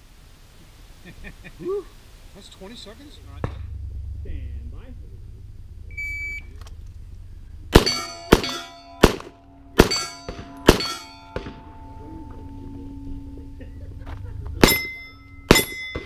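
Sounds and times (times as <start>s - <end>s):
shot timer beep: 5.9s - 6.5s
handgun shots: 7.7s - 11.6s, 14.6s - 16.0s
steel plates ringing: 7.7s - 16.0s.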